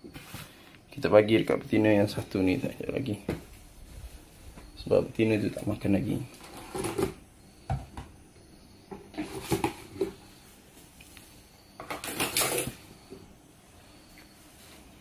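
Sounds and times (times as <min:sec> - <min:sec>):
plastic scraping rustle: 0:06.3 - 0:07.2
plastic tubs knocking and clattering: 0:06.4 - 0:08.2, 0:08.9 - 0:10.2, 0:11.8 - 0:13.3.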